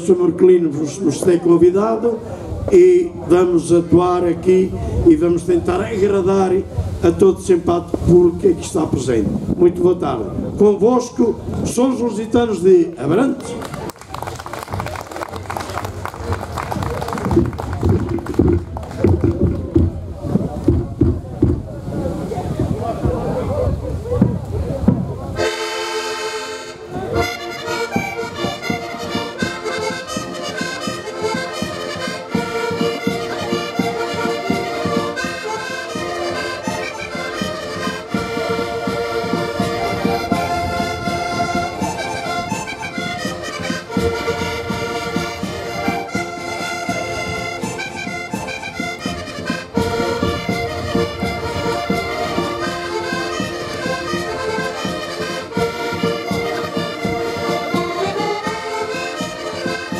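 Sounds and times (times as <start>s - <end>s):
button accordions playing lively tune: 25.3s - 59.9s.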